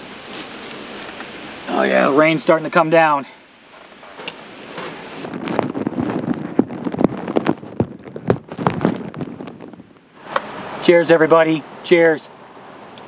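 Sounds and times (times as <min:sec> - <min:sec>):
rain pattering on tarp: 0:04.4 - 0:10.1.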